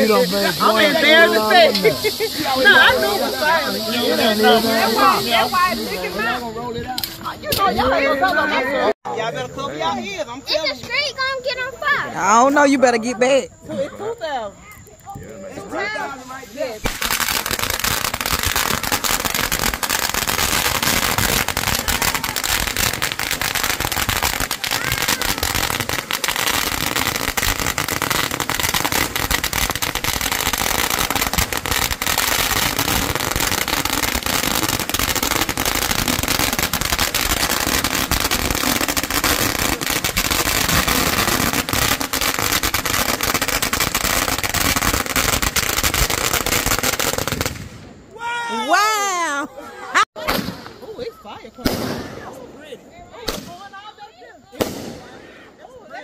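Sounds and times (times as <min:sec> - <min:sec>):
firecrackers popping: 0:00.0 - 0:08.5, 0:14.6 - 0:48.0, 0:50.2 - 0:52.4, 0:53.2 - 0:53.8, 0:54.5 - 0:55.4.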